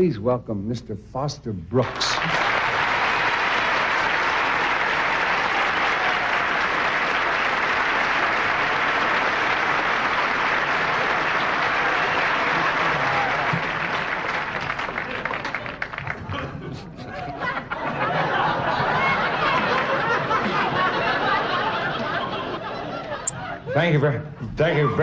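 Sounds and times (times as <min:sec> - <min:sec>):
audience applauding: 0:01.8 - 0:16.6, 0:18.1 - 0:22.2.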